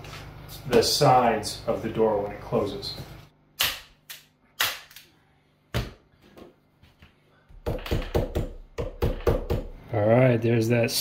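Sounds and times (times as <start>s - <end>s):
tacking strikes on door jamb: 7.6s - 9.7s.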